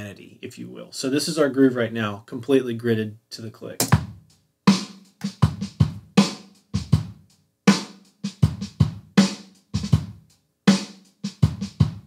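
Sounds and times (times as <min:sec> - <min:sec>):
programmed drum groove: 0:03.7 - 0:12.0.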